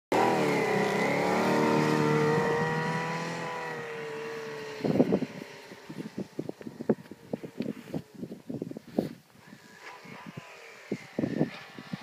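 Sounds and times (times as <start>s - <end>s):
snowmobile engine running hard: 0.1s - 8.0s.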